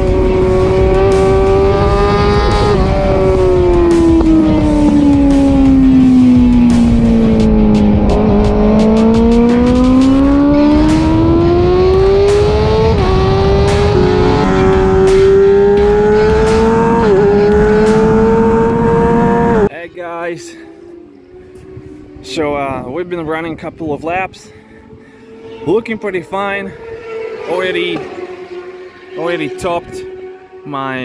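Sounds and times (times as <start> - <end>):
motorcycle engine revving high: 0.0 - 19.7, 24.9 - 30.6.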